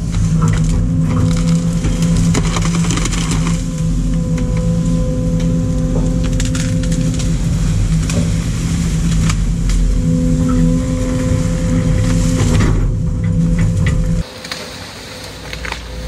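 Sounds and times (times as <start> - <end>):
knocks and clatters: 0.0 - 4.8, 11.5 - 14.2
excavator diesel engine running: 0.0 - 14.3
hydraulic whine: 0.0 - 16.0.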